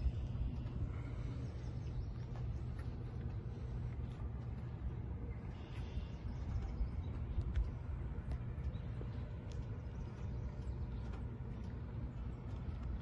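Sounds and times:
car engine running at low revs: 0.0 - 13.0.

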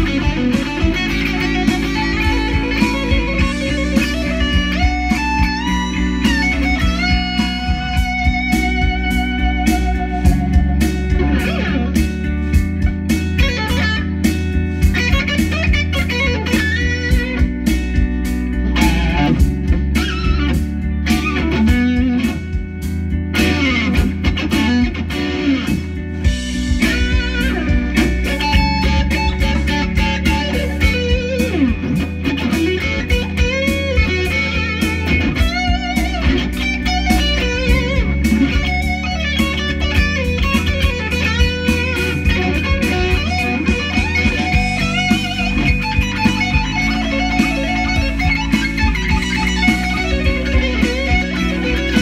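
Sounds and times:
electric guitar lead lines: 0.0 - 52.0.

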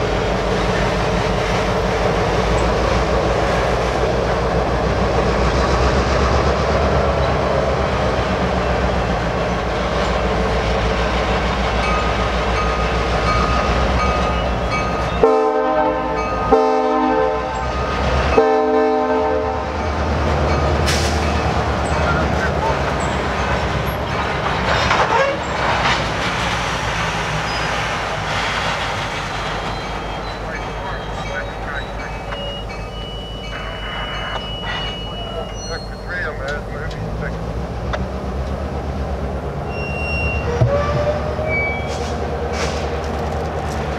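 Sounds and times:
locomotive air horn blasts: 15.2 - 19.8, 39.7 - 41.9
train wheels clattering on rails: 19.7 - 39.7, 40.3 - 43.9.

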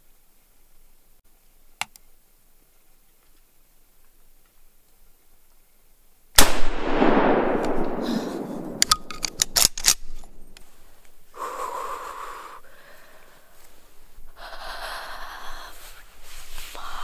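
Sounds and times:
sharp clicks: 1.8 - 2.1, 7.5 - 11.2
echoing gunshot: 6.4 - 10.1.

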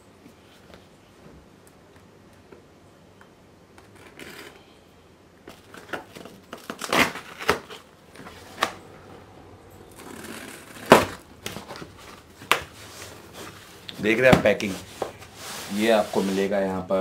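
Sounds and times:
cardboard rustling and scraping: 10.0 - 16.8.

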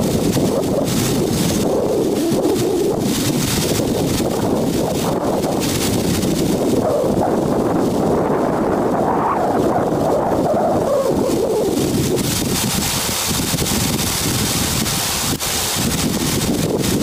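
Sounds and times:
gravel processing machinery churning: 0.0 - 10.5, 11.2 - 17.0
wind on microphone: 0.0 - 17.0.

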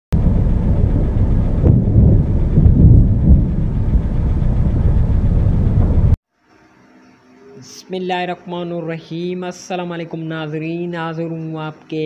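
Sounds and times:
low storm rumble: 0.1 - 6.2.

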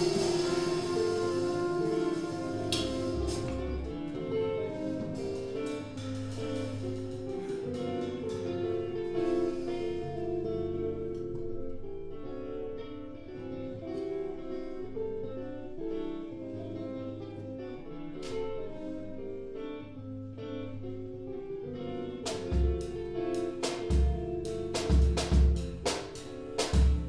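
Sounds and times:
jazz guitar chords: 0.0 - 27.0
kick drum and cymbal hits: 23.7 - 27.0.

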